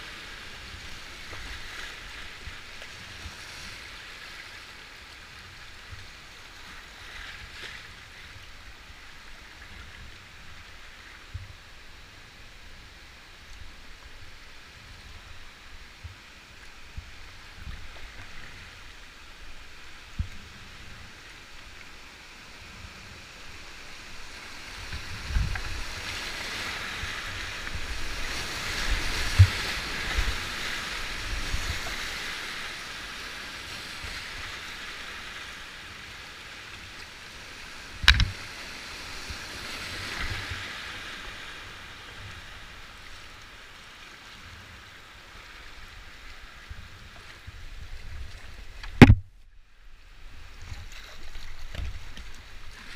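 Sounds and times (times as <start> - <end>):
dull knocks on kayak: 38.0 - 38.4, 48.8 - 49.3.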